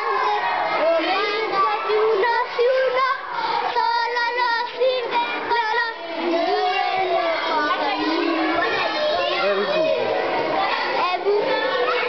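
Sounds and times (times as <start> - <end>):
children singing: 0.0 - 12.0.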